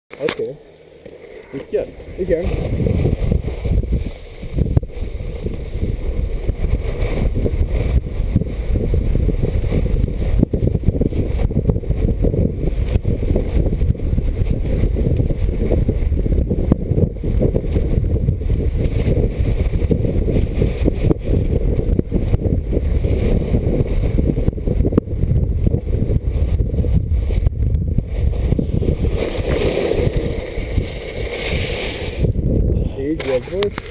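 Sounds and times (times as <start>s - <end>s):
skis hissing over packed snow: 1.1s - 16.2s, 28.0s - 32.3s
wind buffeting microphone: 1.6s - 33.9s.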